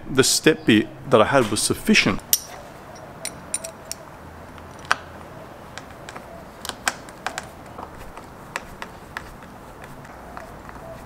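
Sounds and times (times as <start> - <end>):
screwdriver and metal fittings clicking: 3.2 - 4.0.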